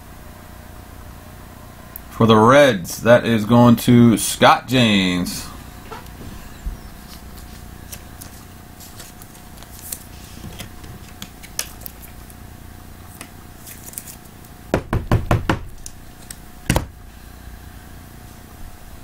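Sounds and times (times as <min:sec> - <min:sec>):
loud knocks on cardboard boxes: 0:14.7 - 0:15.7, 0:16.7 - 0:17.0.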